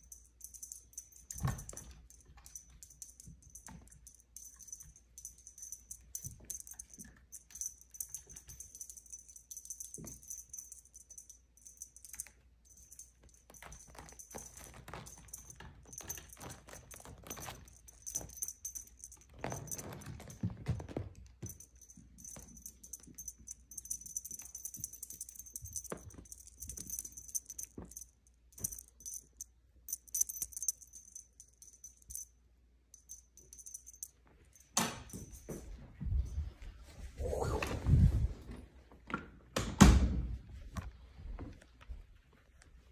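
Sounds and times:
light high jingling: 0.0 - 37.4.

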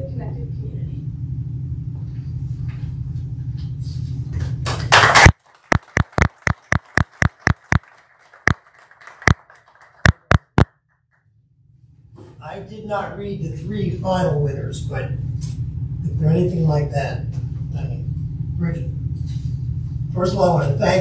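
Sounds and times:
small group applauding: 4.4 - 10.7
low hum: 5.1 - 9.4.

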